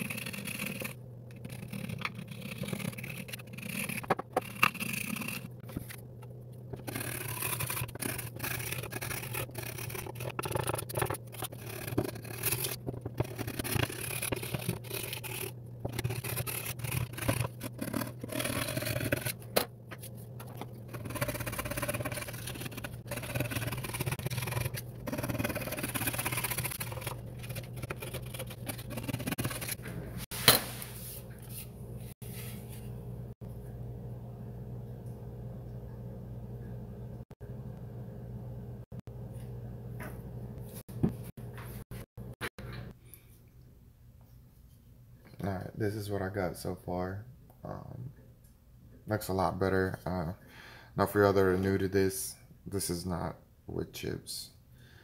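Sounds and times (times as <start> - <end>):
knife scraping wood: 0.0 - 6.0, 6.8 - 31.7
steady low hum: 0.0 - 53.7.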